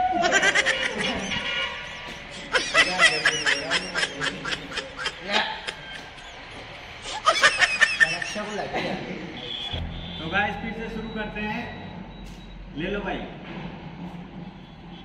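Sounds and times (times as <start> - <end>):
high-pitched giggling: 0.1 - 9.1.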